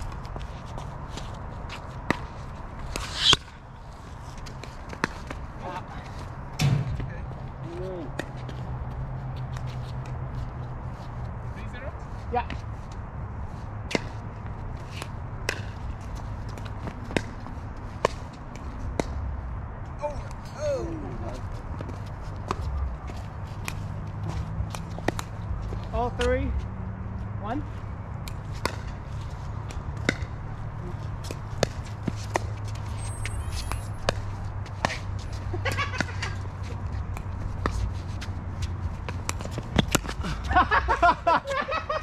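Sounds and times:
shoe scuffs: 0.2s - 5.2s, 31.2s - 35.5s.

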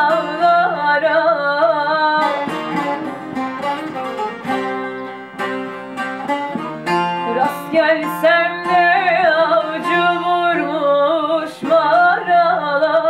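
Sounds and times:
plucked lute melody: 0.0s - 13.0s.

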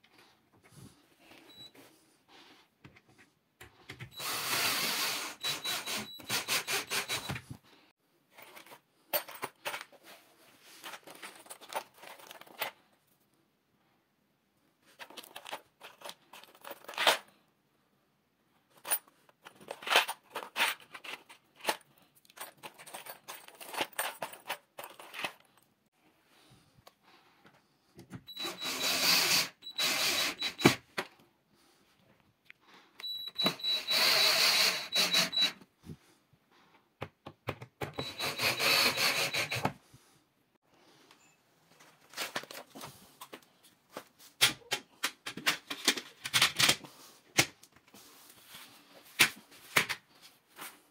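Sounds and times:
cordless drill driving screws: 4.1s - 7.4s, 28.3s - 30.8s, 33.0s - 35.6s, 37.9s - 39.8s
screws and metal fittings clattering: 4.1s - 7.5s, 10.8s - 12.8s, 15.0s - 17.3s, 18.7s - 25.6s, 37.9s - 39.7s.

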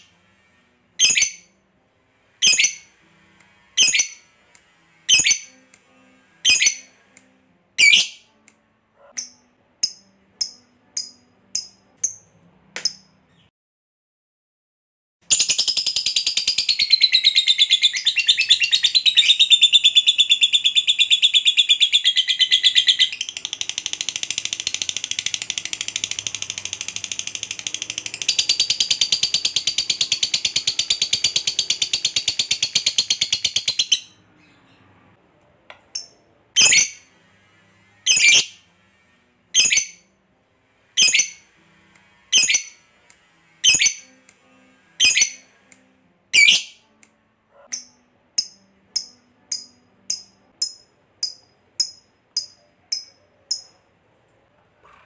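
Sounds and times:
lovebird rapid trill: 15.3s - 34.2s, 47.7s - 53.8s.

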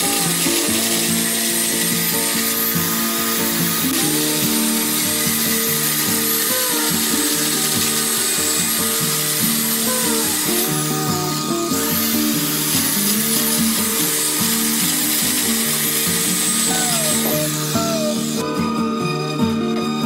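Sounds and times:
angle grinder cutting wood: 0.0s - 20.0s.

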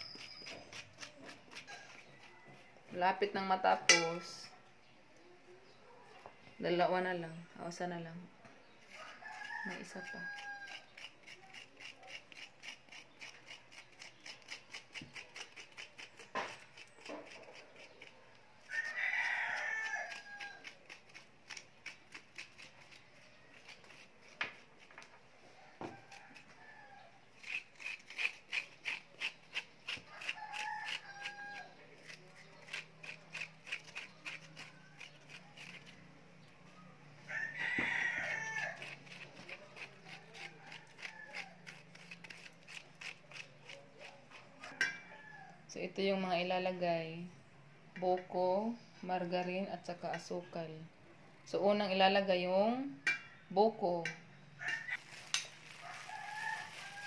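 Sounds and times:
metal spoon scraping steel bowl: 0.0s - 2.3s, 54.6s - 55.7s
rooster crowing: 8.9s - 10.9s, 18.6s - 20.7s, 25.4s - 27.2s, 30.1s - 31.8s, 37.2s - 39.1s, 40.2s - 41.8s, 54.6s - 57.0s.

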